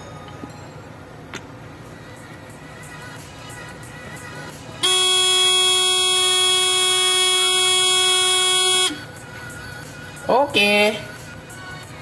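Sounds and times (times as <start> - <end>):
alarm panel buzzer tone: 4.8 - 9.0.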